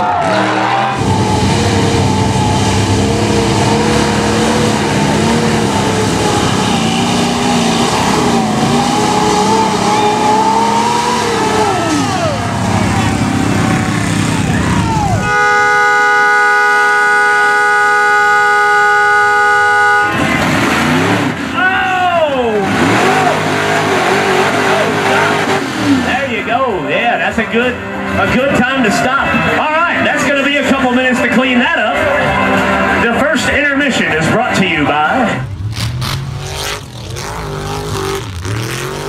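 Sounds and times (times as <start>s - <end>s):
truck engines revving: 0.0s - 39.0s
multi-tone air horn: 15.2s - 20.4s.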